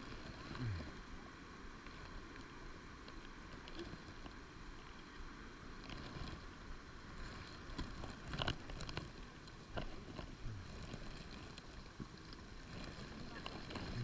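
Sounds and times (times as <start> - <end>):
wind: 0.0 - 14.0
rustling: 5.7 - 14.0.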